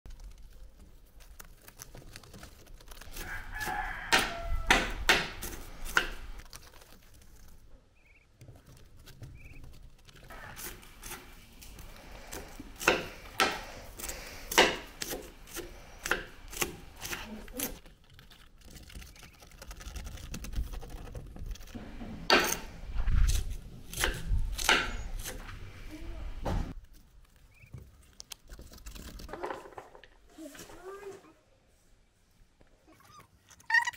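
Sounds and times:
knife chopping on stone countertop: 12.4 - 17.8.

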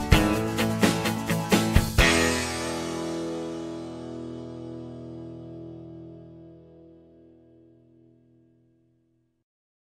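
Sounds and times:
plucked string music: 0.0 - 8.8.

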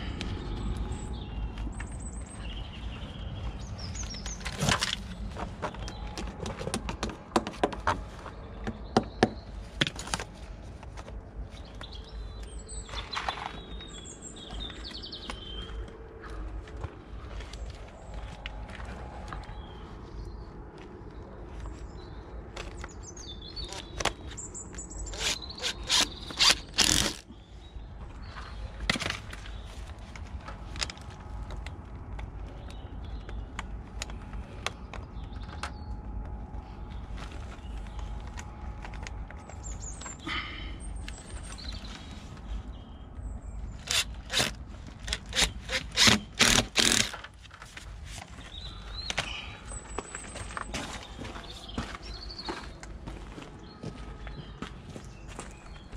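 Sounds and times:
birds chirping: 0.0 - 10.4, 11.4 - 30.0, 32.4 - 47.2, 48.3 - 55.9
sharp knocks and clicks on downpipe: 5.6 - 8.0.

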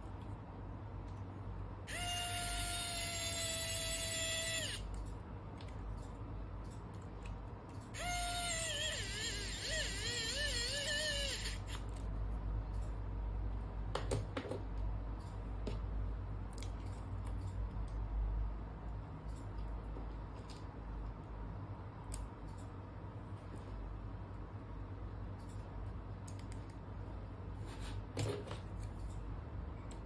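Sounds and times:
electric screwdriver motor whine: 1.9 - 4.8.

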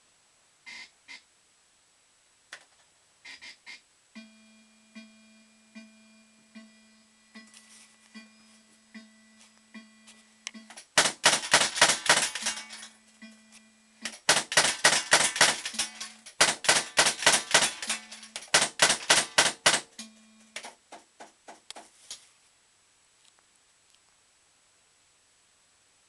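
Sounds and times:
low steady hum: 0.0 - 26.0
fruit machine rapid clicks: 10.9 - 12.9, 14.0 - 20.0.

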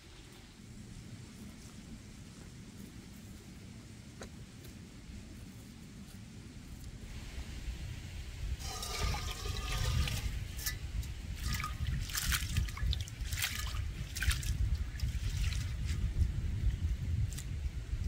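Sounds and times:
water pouring and splashing: 8.6 - 16.1.

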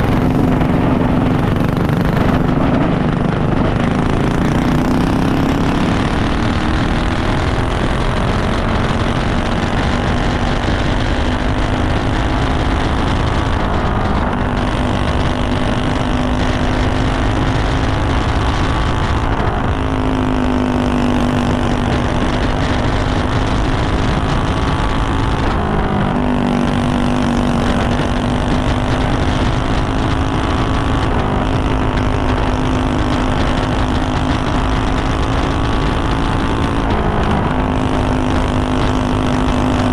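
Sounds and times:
kart engine at high revs: 0.0 - 39.9.

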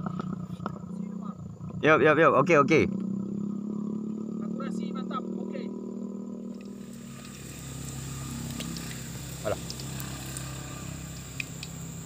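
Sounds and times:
small engine humming: 6.5 - 12.0.

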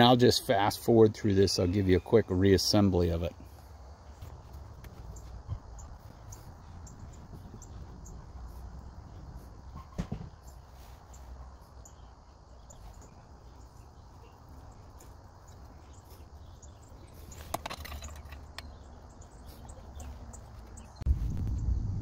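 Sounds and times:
clicks and taps of parts: 17.4 - 18.7.

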